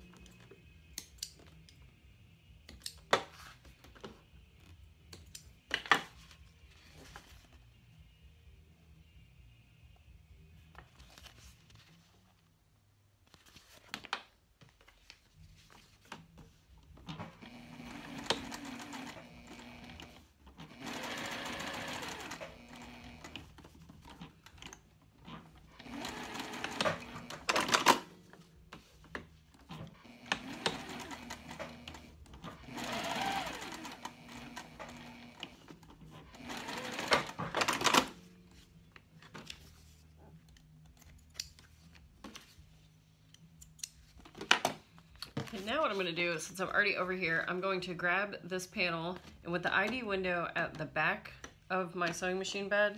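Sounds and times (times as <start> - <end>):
sewing machine stitching: 17.2 - 23.5, 25.7 - 28.1, 29.8 - 38.2.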